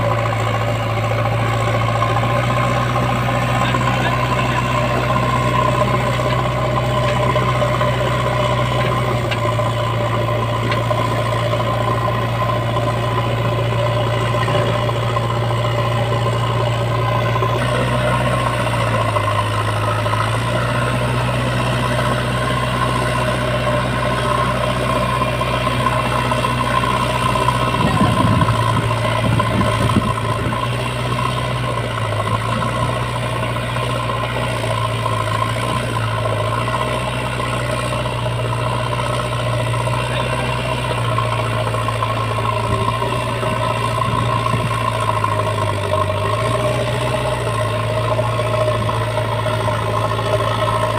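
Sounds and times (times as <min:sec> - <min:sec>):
diesel engine running: 0:00.0 - 0:50.9.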